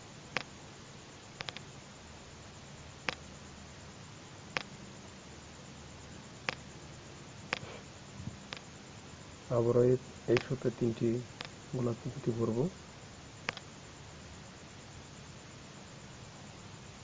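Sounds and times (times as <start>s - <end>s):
low steady hum: 0.0s - 17.0s
beads clicking: 1.4s - 1.6s.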